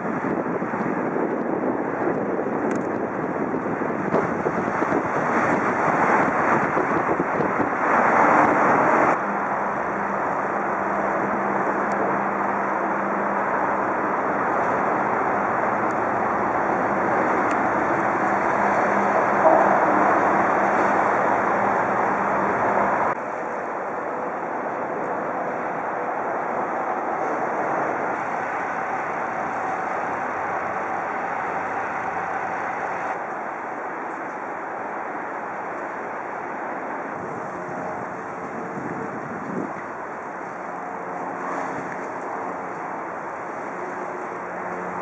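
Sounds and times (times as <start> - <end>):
harbour noise: 0.0 - 45.0
steady low hum: 0.0 - 45.0
wind on microphone: 0.0 - 45.0.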